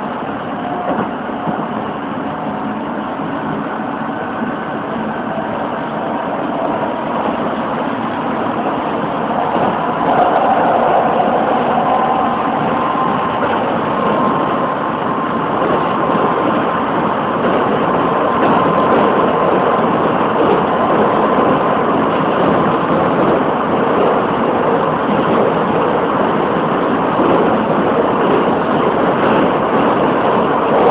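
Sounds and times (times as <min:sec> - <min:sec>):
train wheels rumbling on rail: 0:00.0 - 0:30.9.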